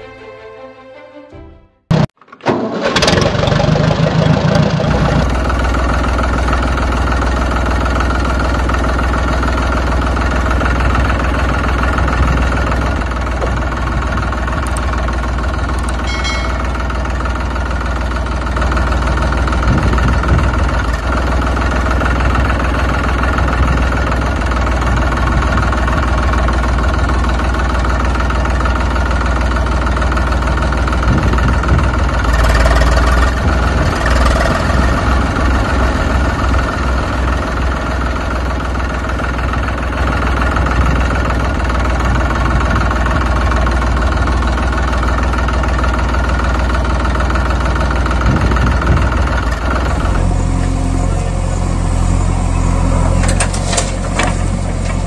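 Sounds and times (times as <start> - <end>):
tractor engine humming: 1.9 - 55.0
short ding: 16.0 - 17.4.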